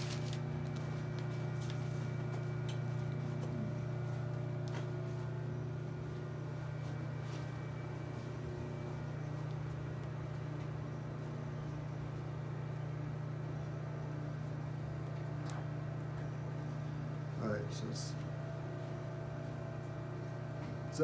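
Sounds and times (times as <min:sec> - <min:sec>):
low machine hum: 0:00.0 - 0:21.0.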